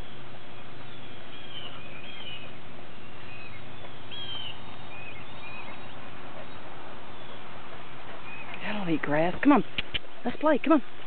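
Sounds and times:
outdoor background hiss: 0:00.0 - 0:11.0
small birds chirping: 0:00.0 - 0:11.0.

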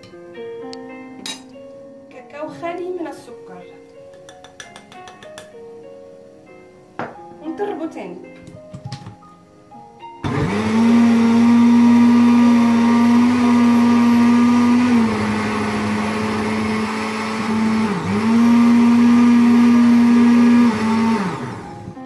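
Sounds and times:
electric blender running: 0:10.2 - 0:22.0.

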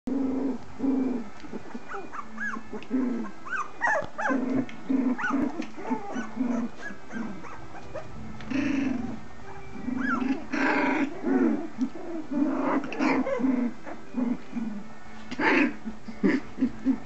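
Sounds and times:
puppies growling: 0:00.1 - 0:17.0
puppies squealing and yipping: 0:01.4 - 0:14.1.

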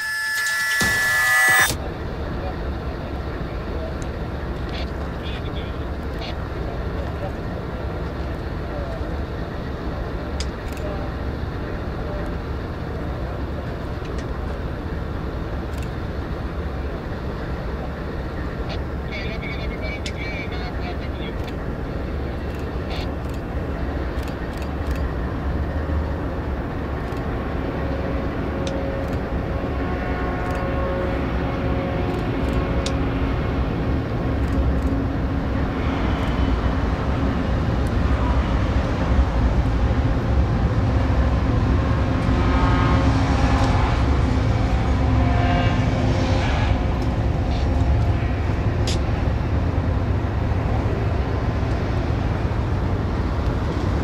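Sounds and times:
freight train rumbling past: 0:01.5 - 0:54.0.

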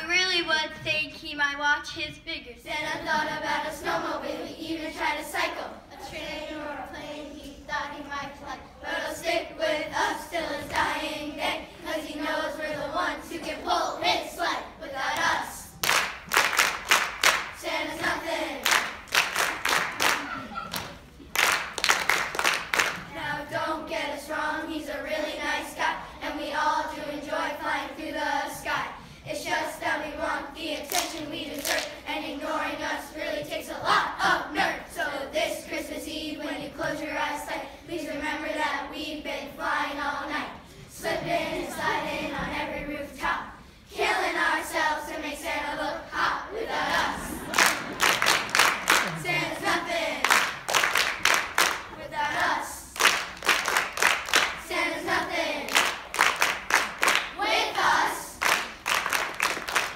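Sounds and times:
children's choir singing: 0:02.4 - 0:59.9
rhythmic hand clapping: 0:15.1 - 0:23.4, 0:30.8 - 0:32.0, 0:47.0 - 0:59.9.

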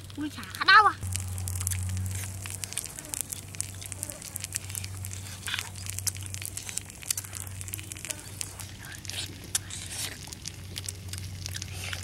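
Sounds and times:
chewing clicks and crackles: 0:00.0 - 0:12.0
steady low hum: 0:00.9 - 0:12.0
leaves being handled: 0:01.0 - 0:08.8.

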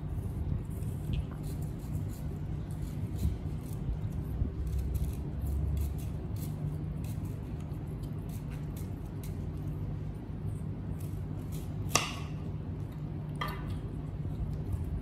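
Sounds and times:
low steady hum: 0:00.0 - 0:15.0
knife slicing fruit: 0:10.9 - 0:12.4.

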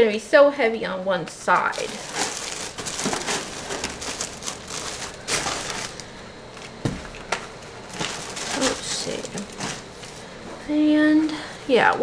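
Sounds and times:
paper rustling and crinkling: 0:01.6 - 0:06.8, 0:07.8 - 0:10.3
boxes tapping: 0:01.8 - 0:05.9.

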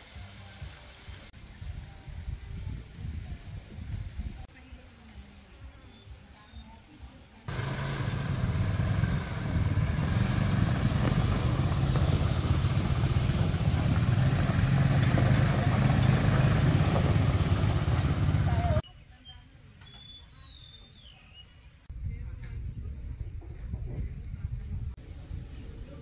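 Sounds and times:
quad bike engines humming: 0:07.5 - 0:18.8
faint bird chirps: 0:17.6 - 0:21.9.

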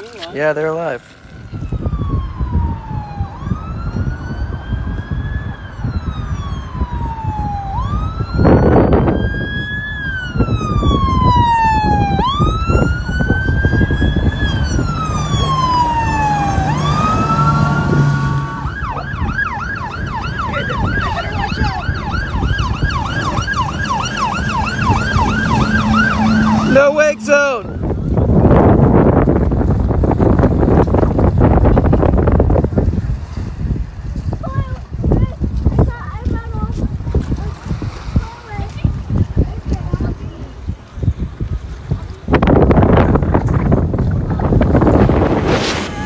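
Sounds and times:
boat engine rumble: 0:00.0 - 0:46.0
boat siren wailing and yelping: 0:01.3 - 0:28.8
rush of noise: 0:41.9 - 0:46.0.

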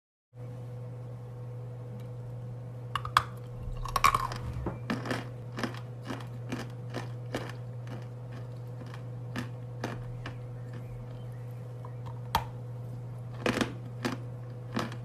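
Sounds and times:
dry chewing crunches: 0:03.6 - 0:11.3, 0:13.3 - 0:15.0.

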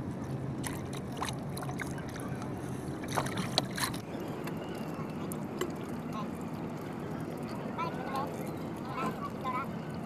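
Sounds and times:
water washing around canoe: 0:00.0 - 0:04.2
fish tapping and splashing: 0:00.6 - 0:04.6.

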